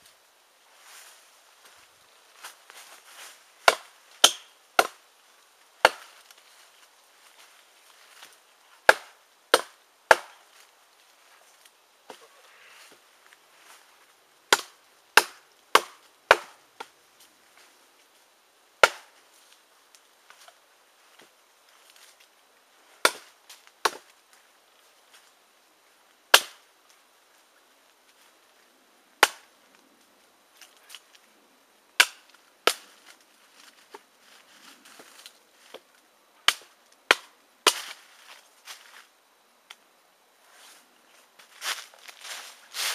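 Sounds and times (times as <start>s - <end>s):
leaf litter rustling: 40.5s - 42.9s.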